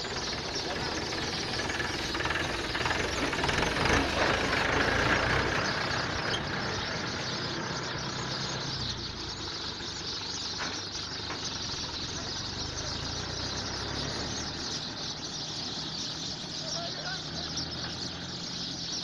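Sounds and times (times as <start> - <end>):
chorus of sparrows chirping: 0.0 - 19.0.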